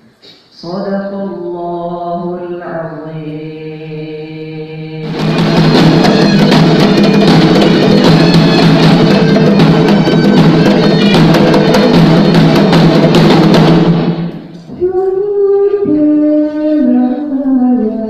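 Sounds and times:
man chanting: 0.5 - 5.1
traditional dance music drumming: 5.0 - 14.6.

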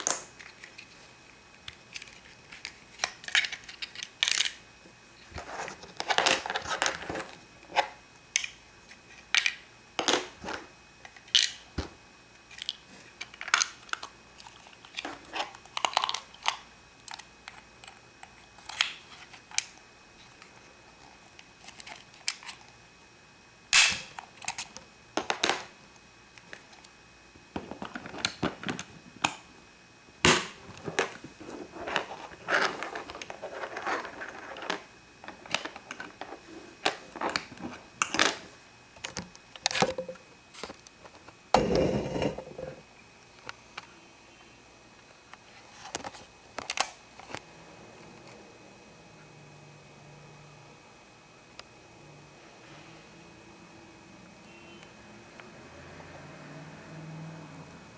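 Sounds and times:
rubbing and rustling of handling: 5.2 - 8.0, 30.6 - 38.6
plastic toy clicks and snaps: 23.8 - 24.6.

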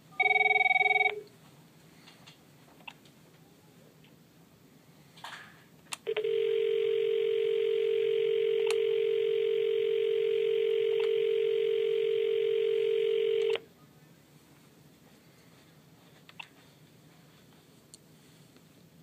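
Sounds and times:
phone dial tone: 0.2 - 1.2, 6.1 - 13.6.

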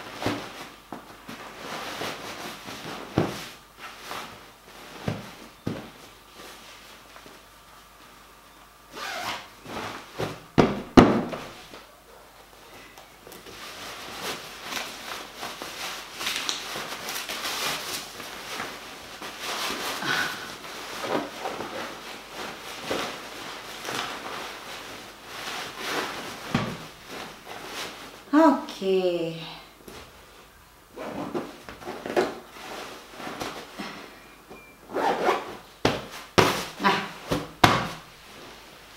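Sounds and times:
cloth rustling and rubbing: 13.5 - 28.3, 29.9 - 33.8, 34.9 - 38.9.

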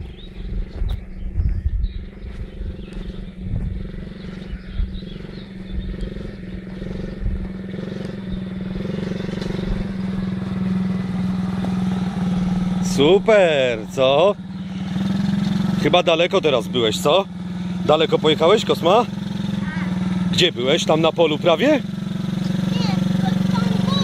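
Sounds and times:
wind rumble on microphone: 0.0 - 11.8
mini quad bike motor running: 2.0 - 24.0.

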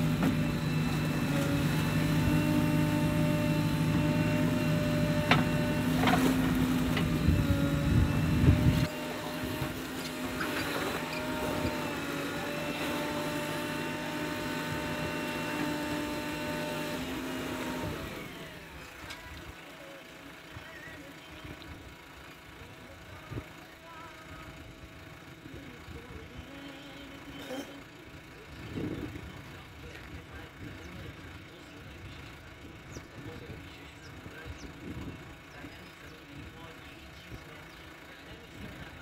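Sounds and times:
steady whine: 0.0 - 12.8
diesel engine running hard: 0.0 - 39.0
digger knocks: 5.0 - 7.3.

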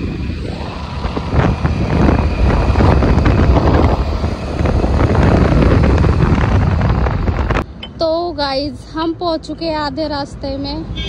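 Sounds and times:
wind buffeting microphone: 0.0 - 7.7
road noise: 0.0 - 11.0.

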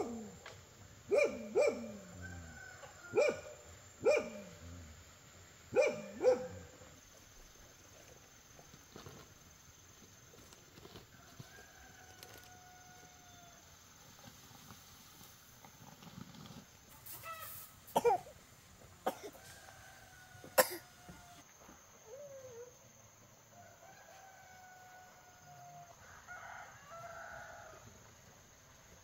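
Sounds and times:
rooster crowing: 1.5 - 3.6, 11.2 - 13.6, 19.2 - 21.4, 23.6 - 28.0.

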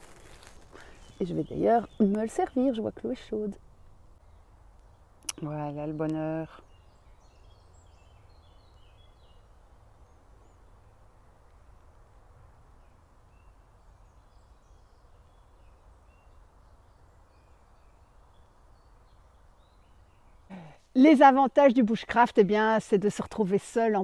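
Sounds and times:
birds chirping: 0.7 - 11.0.

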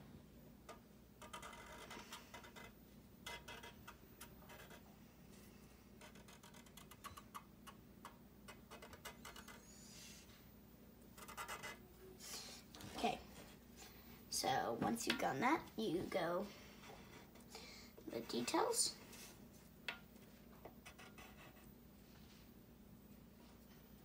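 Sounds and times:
marker scratching on paper: 1.2 - 4.8, 6.0 - 7.0, 8.7 - 10.2, 11.2 - 11.8, 20.8 - 21.7.

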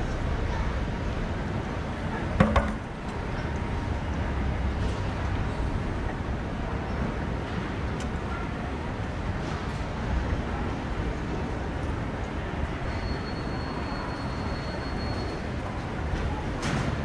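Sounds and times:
sharp knocks: 2.4 - 2.9.

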